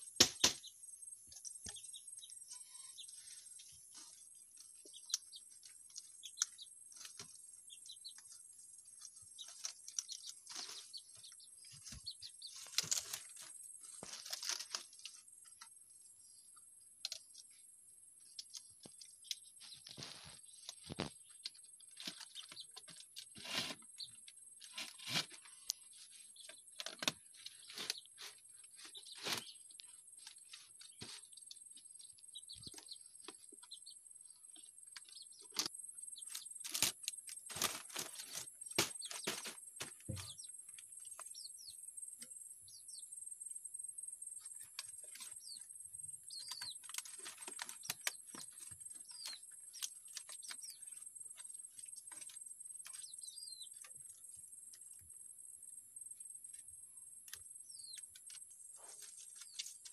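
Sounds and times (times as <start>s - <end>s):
birds chirping: 0.0s - 59.9s
dry leaf basket crackling: 36.3s - 39.5s.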